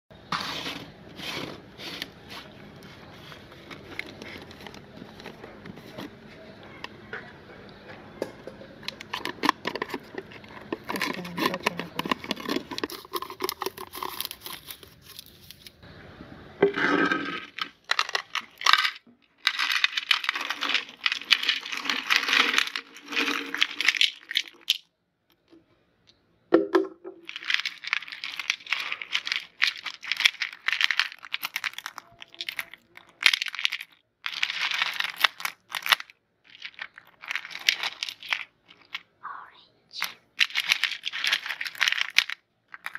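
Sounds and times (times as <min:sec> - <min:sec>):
plastic jar crackling: 0:00.2 - 0:06.3, 0:08.8 - 0:15.8, 0:16.6 - 0:24.9, 0:27.2 - 0:39.1, 0:40.0 - 0:42.9
candies shuffled by hand: 0:00.2 - 0:06.6, 0:08.8 - 0:15.8, 0:17.0 - 0:24.8, 0:27.2 - 0:39.1, 0:40.0 - 0:42.9
candies clattering on plate: 0:08.2 - 0:15.7, 0:16.6 - 0:25.5, 0:27.2 - 0:39.1, 0:40.0 - 0:42.9.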